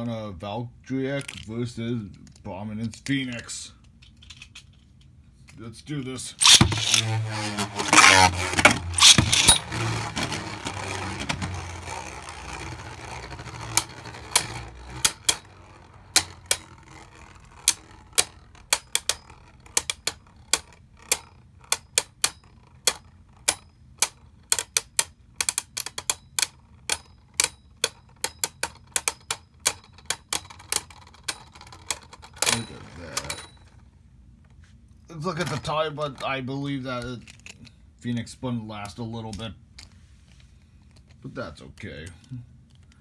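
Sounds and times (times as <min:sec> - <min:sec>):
spinning tops clattering: 0:06.4 - 0:22.6
spinning tops clicking together: 0:06.4 - 0:33.4.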